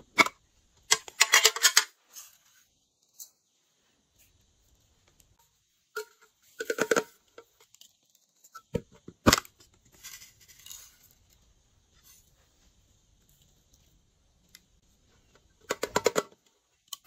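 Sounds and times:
soft rustle: 0:02.0 - 0:06.6, 0:09.8 - 0:15.4.

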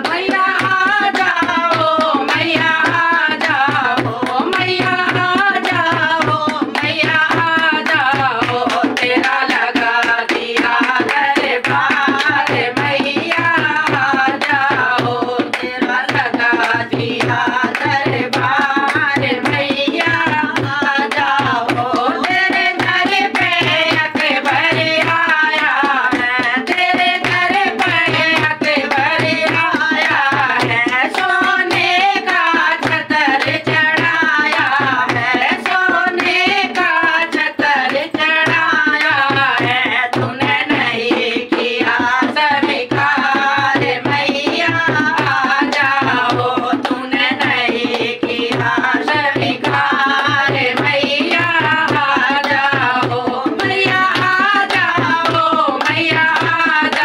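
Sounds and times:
barrel drum rhythm: 0:00.0 - 0:57.0
hand-clapping in time: 0:00.0 - 0:57.0
women singing together: 0:00.0 - 0:57.0.

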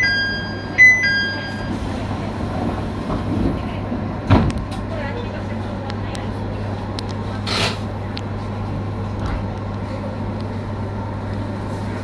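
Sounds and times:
train two-note chime: 0:00.0 - 0:01.8
train hum and rumble: 0:00.0 - 0:12.0.

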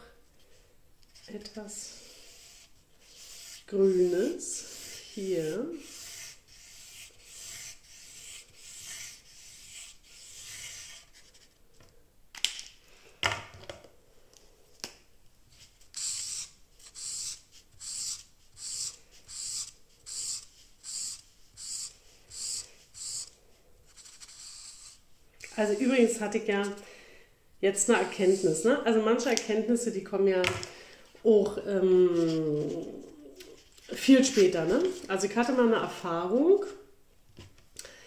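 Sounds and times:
felt-tip marker on paper: 0:02.0 - 0:11.2, 0:15.9 - 0:23.3, 0:23.9 - 0:26.8, 0:28.0 - 0:28.6.

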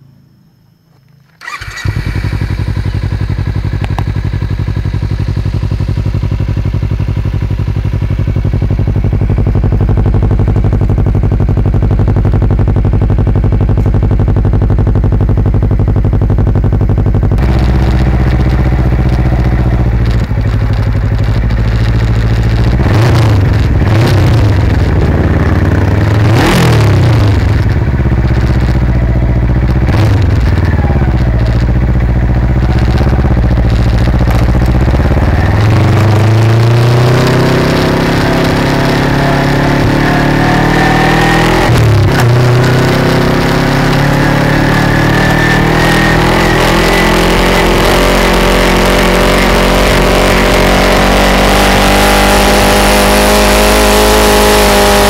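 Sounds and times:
gear changes: 0:00.9 - 0:55.0
motorcycle exhaust revving: 0:01.4 - 0:55.0.

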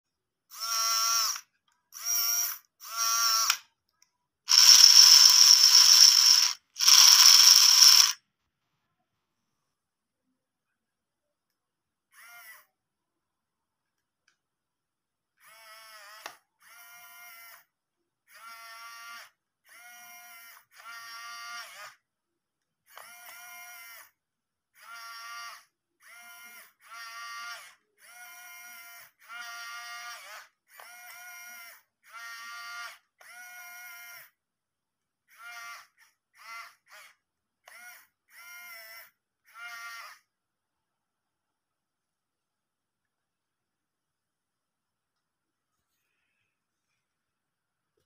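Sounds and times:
small geared motor whining: 0:00.5 - 0:01.4, 0:04.5 - 0:08.2, 0:35.3 - 0:40.2.

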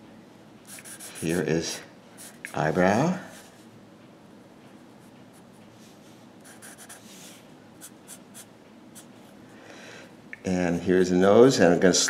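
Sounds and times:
marker scratching on paper: 0:00.7 - 0:01.4, 0:06.4 - 0:09.1.

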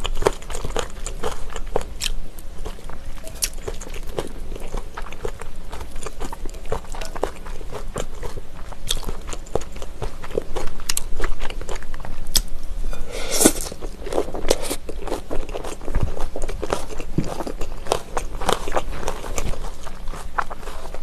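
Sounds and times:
wet crunchy chewing: 0:00.0 - 0:21.0
slurp: 0:12.9 - 0:14.8.

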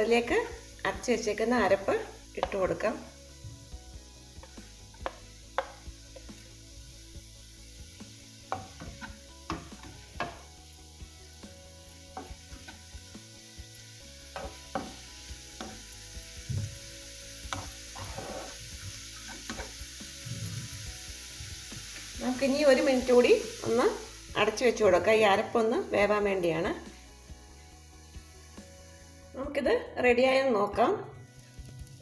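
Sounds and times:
faint sizzle: 0:00.0 - 0:32.0
spatula scraping: 0:17.5 - 0:20.7.

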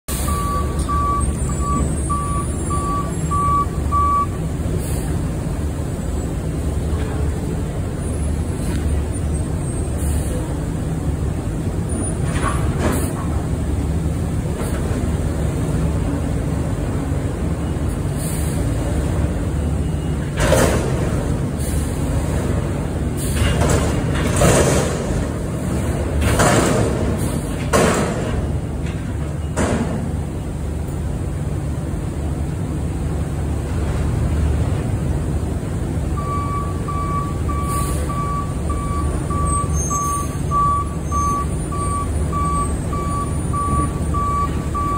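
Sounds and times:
truck engine low rumble: 0:00.0 - 0:44.9
truck reversing alarm beeps: 0:00.1 - 0:05.1, 0:17.4 - 0:20.4, 0:36.0 - 0:44.9
dumpster bangs and clatters: 0:20.2 - 0:21.5, 0:22.2 - 0:30.3.

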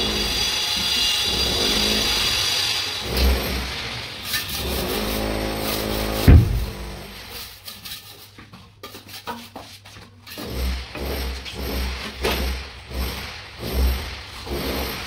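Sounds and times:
trowel scraping wet mortar: 0:04.2 - 0:06.2, 0:06.8 - 0:15.0.

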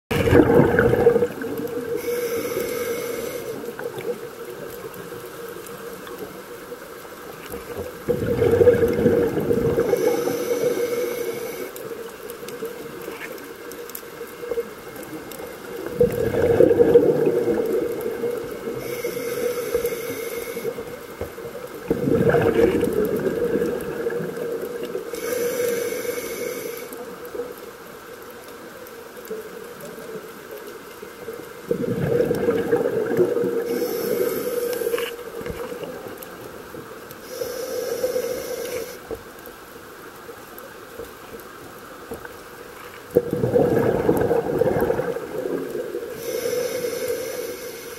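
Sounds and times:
regulator exhale bubbling: 0:00.1 - 0:04.0, 0:08.0 - 0:11.8, 0:15.8 - 0:21.0, 0:21.8 - 0:27.0, 0:31.6 - 0:36.0, 0:37.2 - 0:39.1, 0:43.2 - 0:47.9
inhalation hiss: 0:01.8 - 0:03.9, 0:09.7 - 0:11.9, 0:18.6 - 0:21.0, 0:25.0 - 0:27.1, 0:33.6 - 0:35.7, 0:37.2 - 0:39.2, 0:46.1 - 0:47.9.

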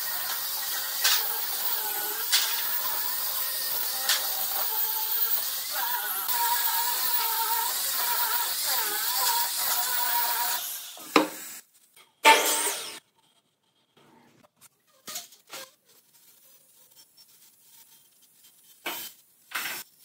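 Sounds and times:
angle grinder sanding wood: 0:00.0 - 0:11.6.

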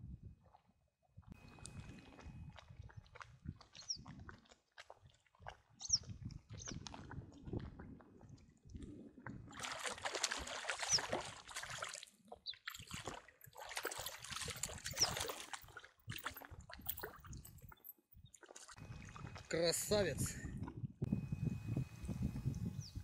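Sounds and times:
wind rumble on microphone: 0:00.0 - 0:04.5, 0:05.4 - 0:09.7, 0:16.1 - 0:23.0
water splashing and sloshing: 0:00.4 - 0:22.5.

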